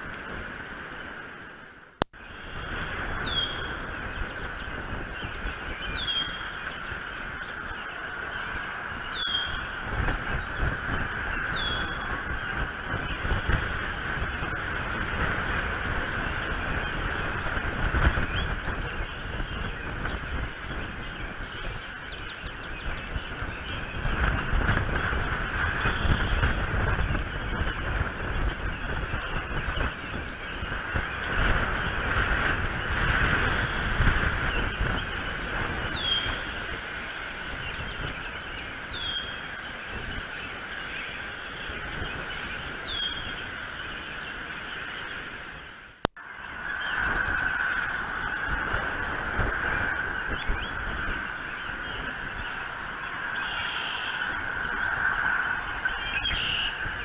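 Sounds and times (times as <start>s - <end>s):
wind and rain on microphone: 0.0s - 57.0s
bird high call: 3.2s - 3.8s, 5.1s - 9.8s, 11.3s - 12.1s, 35.9s - 36.6s, 38.9s - 39.4s, 42.3s - 44.2s, 50.2s - 57.0s.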